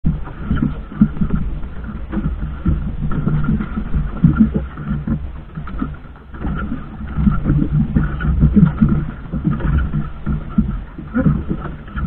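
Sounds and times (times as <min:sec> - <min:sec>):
boat engine humming: 0:00.0 - 0:12.0
water noise: 0:00.0 - 0:12.0.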